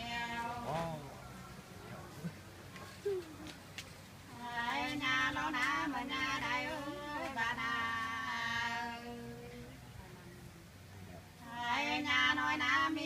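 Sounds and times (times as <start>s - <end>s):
person singing unaccompanied: 0.0s - 1.0s, 4.3s - 10.5s, 11.4s - 13.0s.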